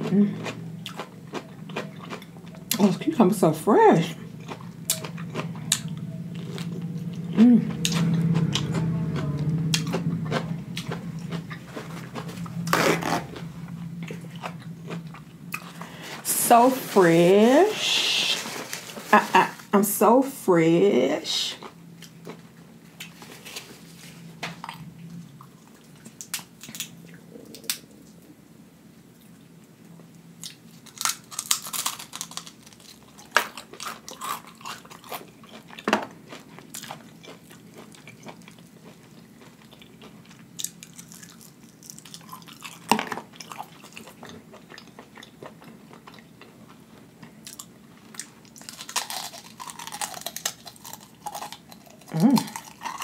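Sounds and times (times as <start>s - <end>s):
chewing: 0.0s - 3.0s, 4.2s - 16.0s, 30.4s - 53.0s
crunching fried food: 4.1s - 16.0s, 30.4s - 53.0s.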